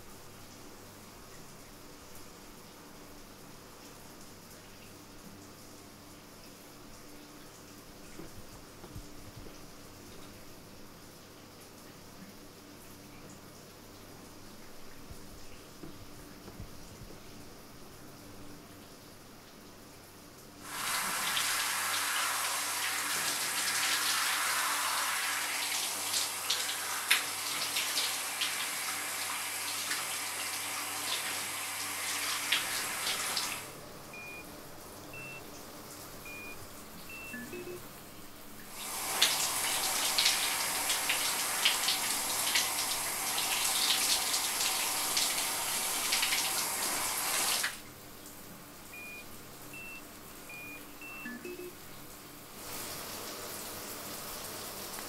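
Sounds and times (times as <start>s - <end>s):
shower spray running: 20.6s - 33.8s, 38.7s - 47.8s, 52.5s - 55.0s
short electronic beeps: 36.3s - 37.8s, 49.8s - 51.8s.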